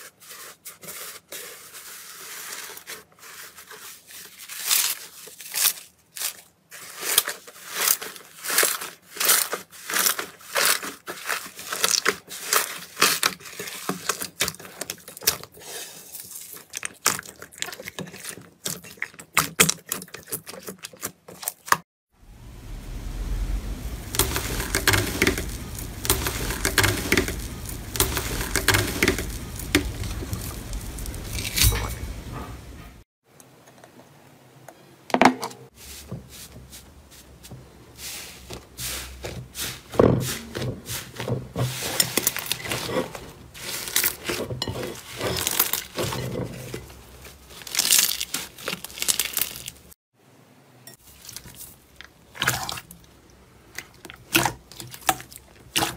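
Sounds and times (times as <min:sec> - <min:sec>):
foil crinkling and crackling: 0:00.0 - 0:21.7, 0:23.9 - 0:32.4, 0:38.4 - 0:50.0
slime crackling and popping: 0:24.1 - 0:31.9, 0:47.6 - 0:49.9.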